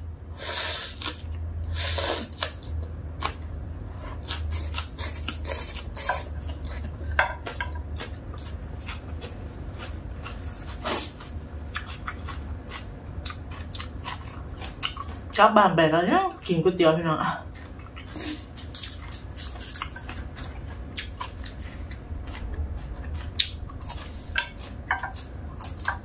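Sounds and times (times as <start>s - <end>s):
low steady hum: 0.0s - 26.0s
chewing: 2.0s - 15.4s, 17.4s - 26.0s
chopsticks scraping a plate: 4.5s - 12.8s, 17.5s - 26.0s.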